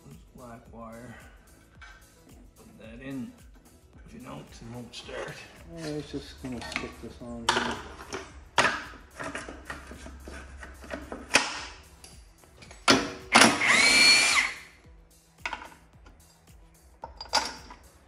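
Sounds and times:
metal parts clanking: 0:05.2 - 0:13.7, 0:15.4 - 0:18.0
impact wrench whine: 0:12.6 - 0:14.8.

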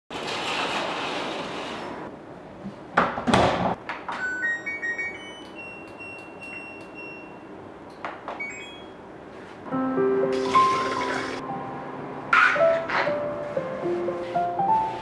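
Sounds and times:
electronic beeps: 0:08.4 - 0:09.0.

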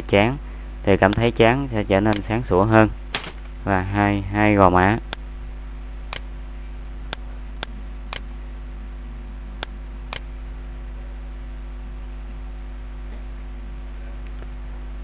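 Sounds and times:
low electrical hum: 0:00.0 - 0:15.0
computer mouse clicking: 0:02.1 - 0:02.3.

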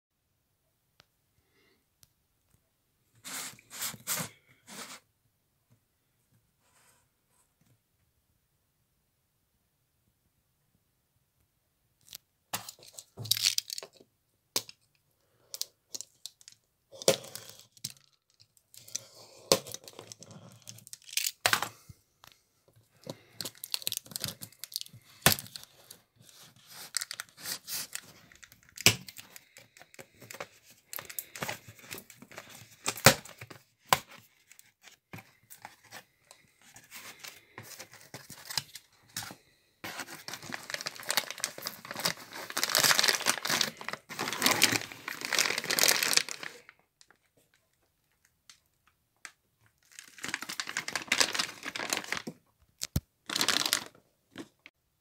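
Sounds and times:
plastic bag crinkling: 0:12.6 - 0:14.0, 0:19.7 - 0:21.4, 0:23.1 - 0:25.6, 0:39.4 - 0:47.3, 0:49.8 - 0:54.0.

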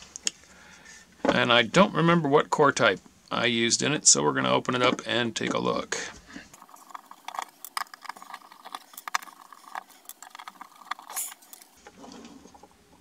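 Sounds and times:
screwdriver clicking and scraping: 0:06.6 - 0:11.8
plastic box being handled: 0:06.6 - 0:13.0.

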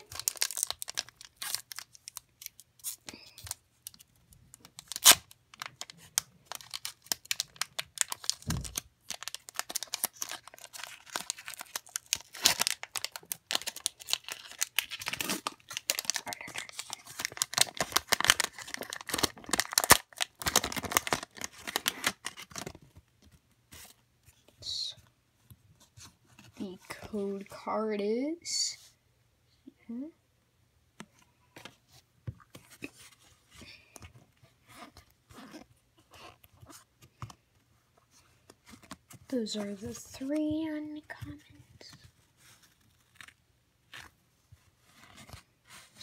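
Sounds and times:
foil wrapper ripping and crinkling: 0:00.0 - 0:04.0, 0:04.6 - 0:22.8.

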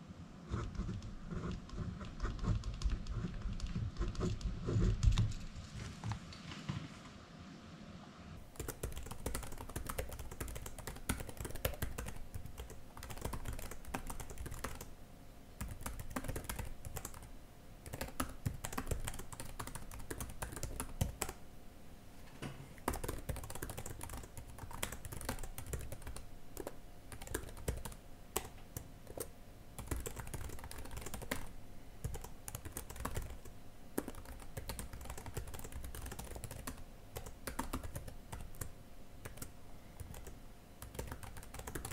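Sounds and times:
typing on keyboard: 0:00.5 - 0:05.4, 0:08.4 - 0:14.9, 0:15.6 - 0:21.4, 0:22.8 - 0:41.9.

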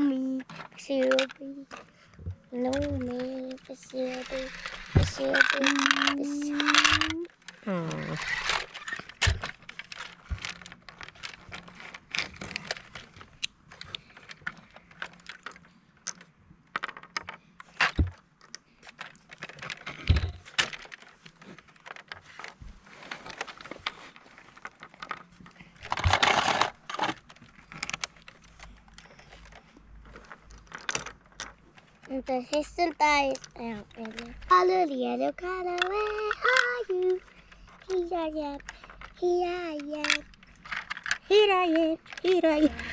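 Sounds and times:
plastic toy pieces clattering: 0:00.1 - 0:42.9
plastic toys knocking on boards: 0:04.1 - 0:07.2.

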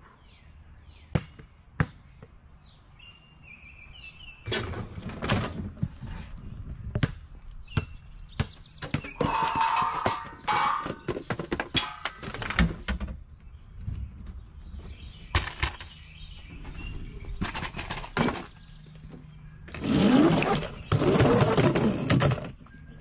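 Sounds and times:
ball clattering into pots and pans: 0:09.0 - 0:12.8
rolling clatter: 0:09.0 - 0:13.2, 0:13.8 - 0:18.7
parts knocking: 0:09.1 - 0:13.0.

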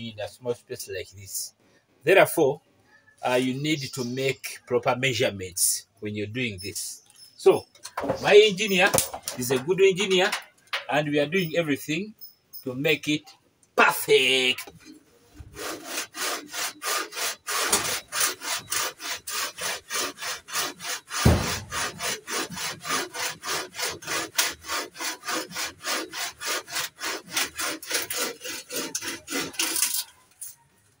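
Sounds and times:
hand saw cutting wood: 0:15.4 - 0:30.2
knock: 0:21.2 - 0:21.7.

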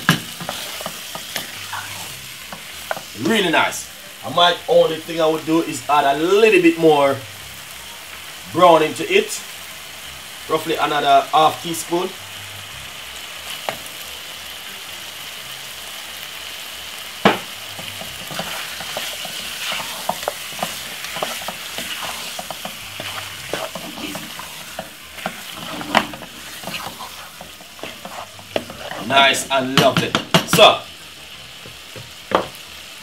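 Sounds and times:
wooden spoon stirring and scraping: 0:00.0 - 0:03.2, 0:17.8 - 0:30.0
chicken sizzling in a pot: 0:00.0 - 0:33.0.

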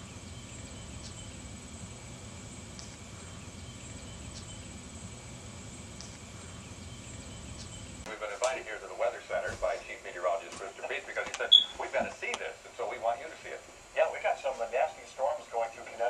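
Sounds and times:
insect short high chirp: 0:00.0 - 0:05.2, 0:11.5 - 0:11.8
faint high insect trill: 0:00.0 - 0:08.0.

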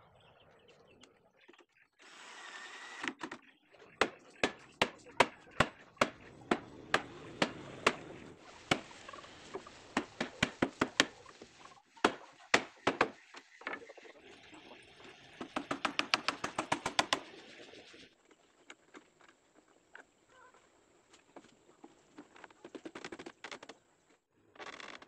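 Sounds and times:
hammer striking nails into wood: 0:04.0 - 0:08.0, 0:12.0 - 0:13.2.

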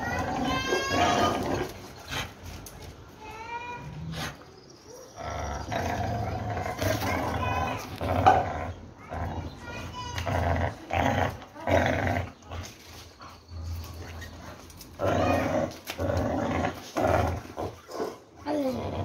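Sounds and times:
dog growling: 0:00.0 - 0:02.3, 0:05.1 - 0:12.7, 0:14.3 - 0:19.0.

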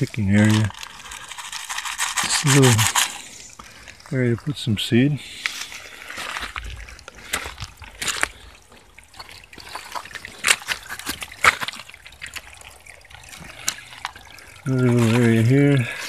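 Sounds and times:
footsteps on wet stones: 0:00.0 - 0:16.0
stream trickling over rocks: 0:00.0 - 0:16.0.

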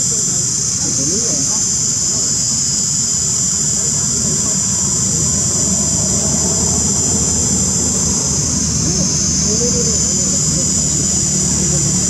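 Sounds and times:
insects droning: 0:00.0 - 0:12.0
low rumble: 0:03.8 - 0:12.0.

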